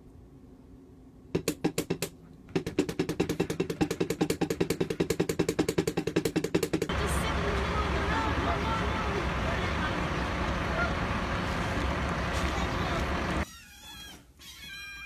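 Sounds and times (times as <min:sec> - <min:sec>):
drumsticks striking drum pad: 0:01.4 - 0:06.9.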